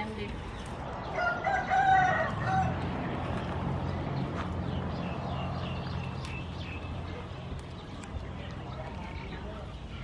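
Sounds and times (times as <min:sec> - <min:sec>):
rooster crowing: 0:01.1 - 0:02.9.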